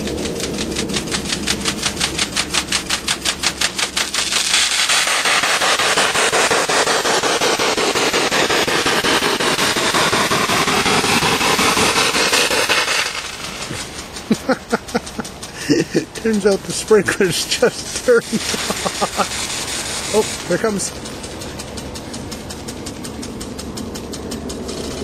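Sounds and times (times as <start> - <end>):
sprinkler water spraying on tent: 0.0 - 25.0.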